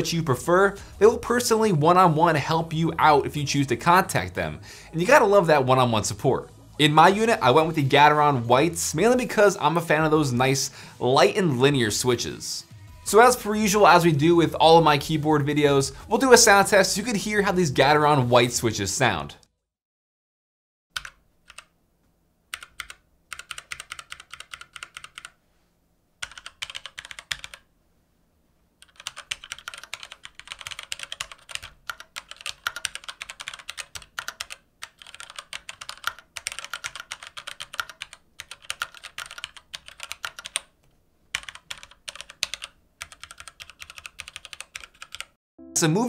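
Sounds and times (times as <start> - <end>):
keyboard typing: 20.9 - 21.7, 22.5 - 25.4, 26.2 - 27.7, 28.8 - 45.4.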